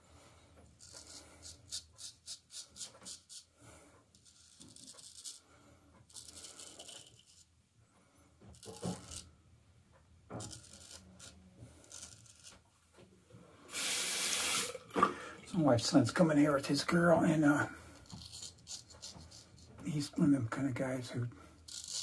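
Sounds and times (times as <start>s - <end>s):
straight razor scraping beard: 0.8s - 3.5s, 4.1s - 5.5s, 6.1s - 7.5s, 8.5s - 9.3s, 10.4s - 12.6s, 17.3s - 20.2s, 21.6s - 22.0s.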